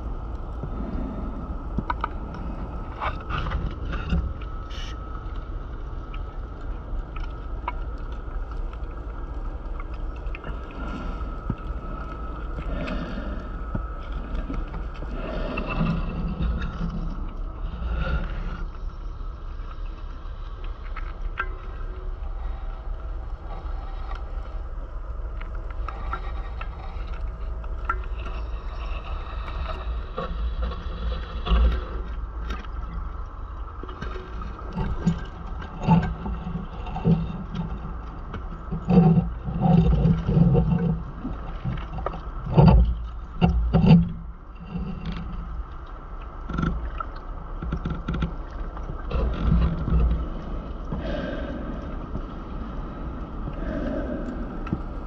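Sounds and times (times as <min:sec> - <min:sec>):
steady underwater hiss: 0:00.0 - 0:55.0
rumbling exhaust bubbles: 0:21.2 - 0:55.0.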